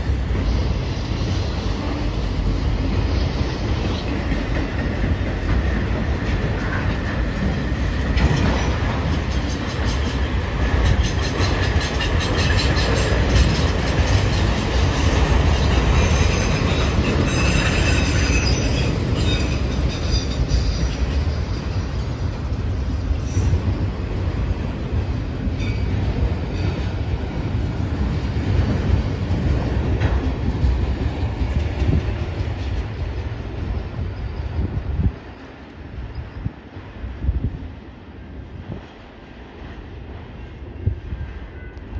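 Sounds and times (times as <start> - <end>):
train wheels rumbling on rail: 0.0 - 41.9
high wheel squeal: 15.9 - 22.2.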